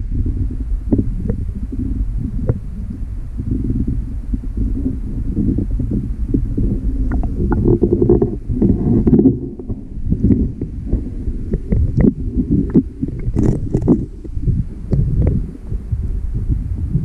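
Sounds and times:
underwater rumble of flowing water: 0:00.0 - 0:17.0
ticks and knocks underwater: 0:07.0 - 0:15.4.

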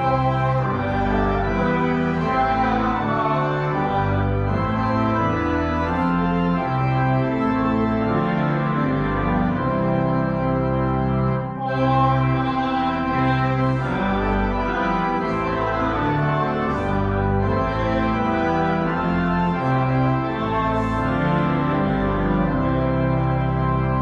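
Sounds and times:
church organ playing a hymn: 0:00.0 - 0:24.0.

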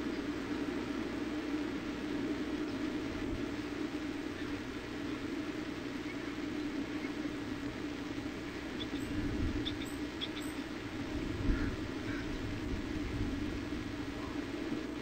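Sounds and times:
microphone hiss and low hum: 0:00.0 - 0:15.0.

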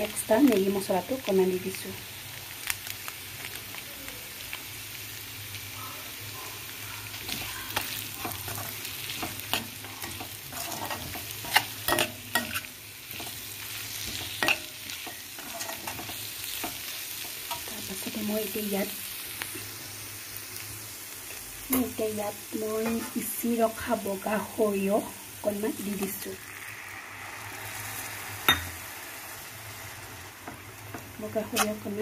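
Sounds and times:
pods sizzling in a pan: 0:00.0 - 0:32.0
metal spatula scraping pan: 0:07.8 - 0:13.4, 0:14.0 - 0:16.9, 0:22.8 - 0:23.3, 0:31.3 - 0:32.0.

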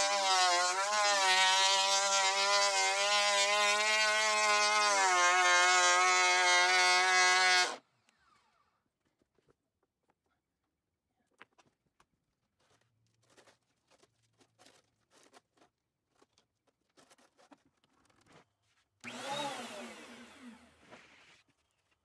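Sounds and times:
planer motor whining and winding down: 0:00.0 - 0:07.8, 0:19.0 - 0:20.8.

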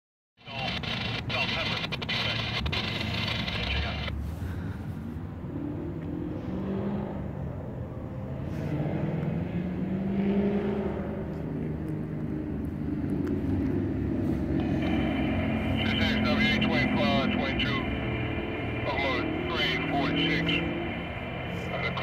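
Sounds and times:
distant engines rumbling: 0:00.4 - 0:22.0
high steady tone: 0:14.4 - 0:22.0.

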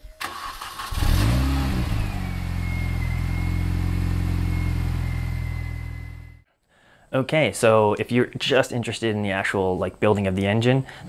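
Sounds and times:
car engine starting and idling: 0:00.1 - 0:06.4.

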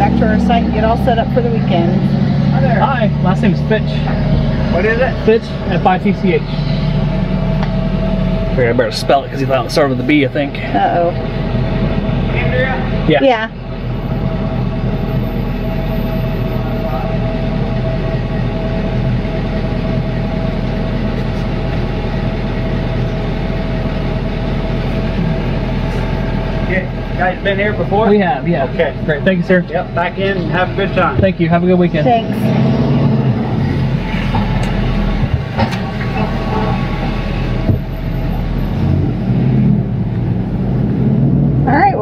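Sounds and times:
engine and road rumble: 0:00.0 - 0:42.0
pickup truck idling: 0:00.0 - 0:42.0.

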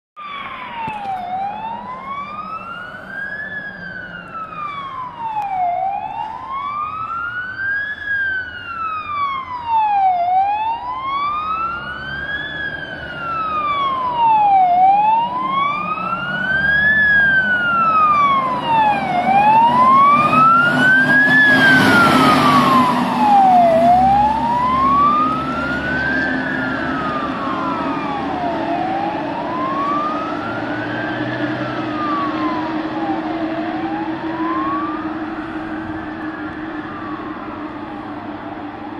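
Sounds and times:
diesel engine and tyres passing: 0:00.2 - 0:38.9
fire engine siren wailing: 0:00.2 - 0:38.9.

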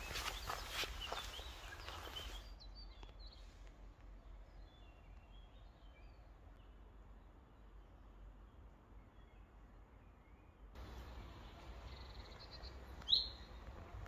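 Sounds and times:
footsteps on dry leaves: 0:00.0 - 0:02.5
birds chirping: 0:00.0 - 0:14.0.

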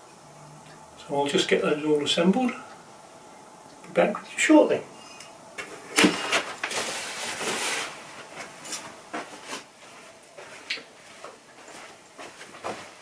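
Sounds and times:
packaging rustle: 0:06.0 - 0:08.0.

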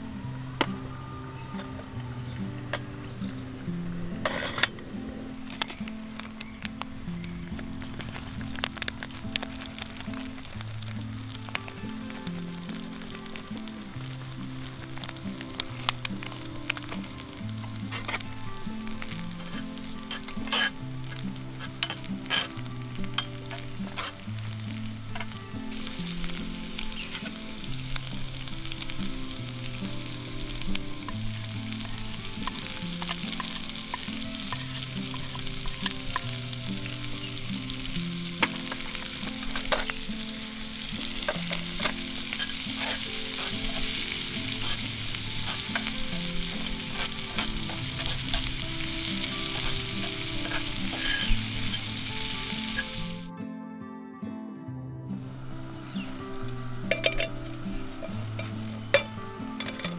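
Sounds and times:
food sizzling in a skillet: 0:00.0 - 0:53.3, 0:55.1 - 0:59.9
metal spoon scraping pan: 0:17.9 - 0:24.3, 0:41.1 - 0:48.8, 0:49.4 - 0:52.0.

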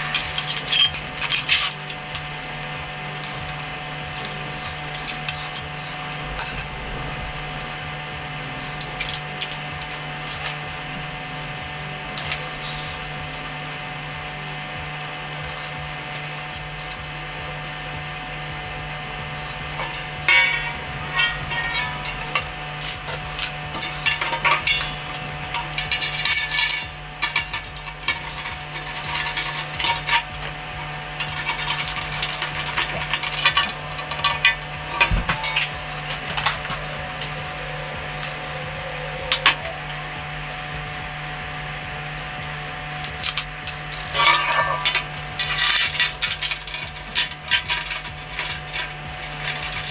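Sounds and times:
metal barbecue parts clinking: 0:00.0 - 0:07.7, 0:19.5 - 0:49.9
steady low hum: 0:00.0 - 0:49.9.

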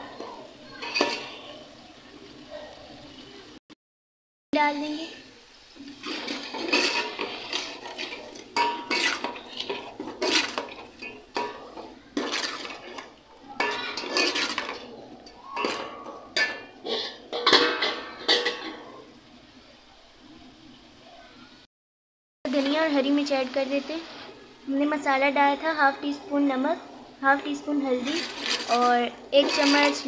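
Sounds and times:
masala frying: 0:00.0 - 0:03.6, 0:04.5 - 0:21.7, 0:22.4 - 0:30.0
metal spoon scraping a metal pot: 0:00.1 - 0:01.5, 0:06.0 - 0:19.0, 0:28.0 - 0:30.0.

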